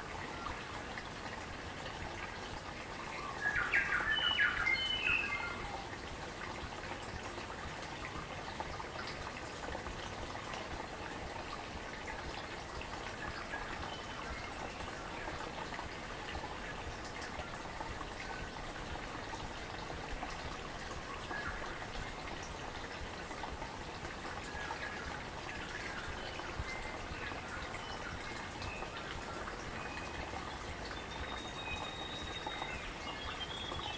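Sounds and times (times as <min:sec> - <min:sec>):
babbling stream: 0:00.0 - 0:33.9
faint high bird chirps: 0:31.0 - 0:33.9.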